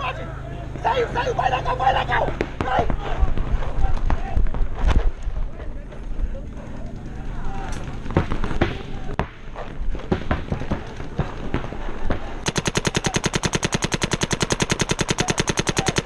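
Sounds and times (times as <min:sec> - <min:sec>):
paintball markers firing: 0:07.7 - 0:16.0.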